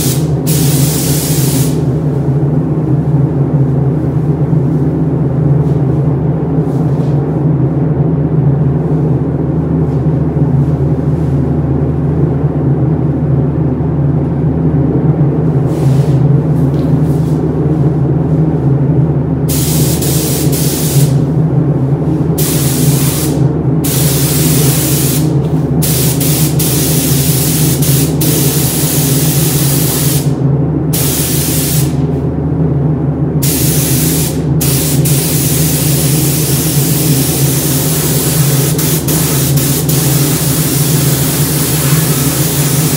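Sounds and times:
air spray gun hissing: 0.0 - 1.8, 19.5 - 21.2, 22.4 - 30.3, 31.0 - 32.0, 33.4 - 42.9
steady low hum: 0.0 - 42.9.

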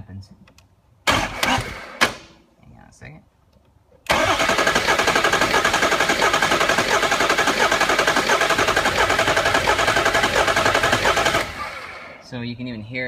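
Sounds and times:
diesel engine cranking: 1.1 - 2.2, 4.1 - 12.2.

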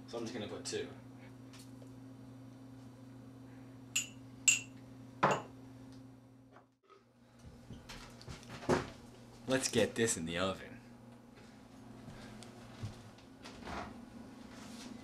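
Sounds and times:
steady low hum: 0.0 - 15.0
spoon clinking glass bowl: 4.0 - 4.7.

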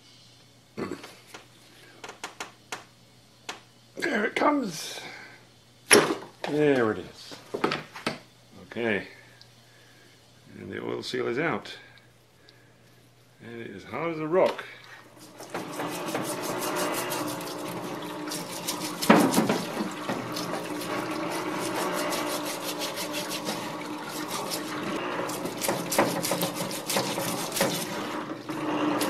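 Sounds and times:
steady machine hum: 8.4 - 29.0
scrubbing metal part by hand: 15.1 - 29.0
solvent splashing in tank: 15.1 - 29.0.

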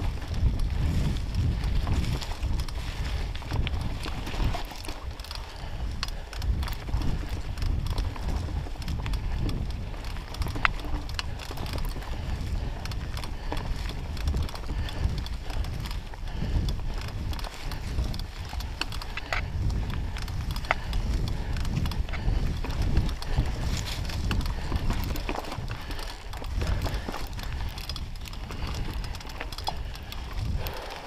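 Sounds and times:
bike clicks and rattles: 0.0 - 31.0
tyres crunching over dry leaves: 22.2 - 31.0.

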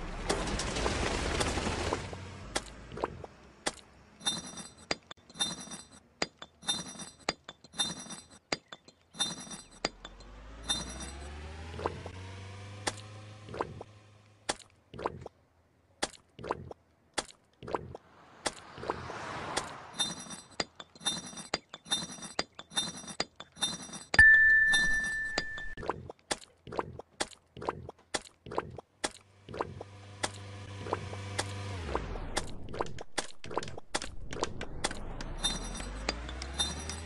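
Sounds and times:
sharp clinks: 4.2 - 11.3, 20.0 - 25.8, 35.1 - 37.0.

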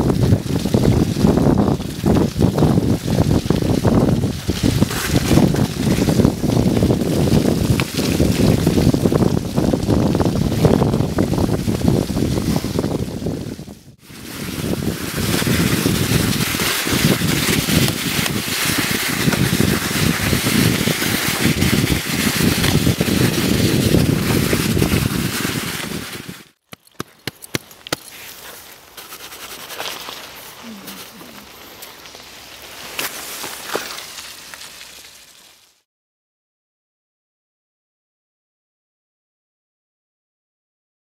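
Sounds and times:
wind buffeting microphone: 0.0 - 26.5
sharp clicks: 26.7 - 28.1.

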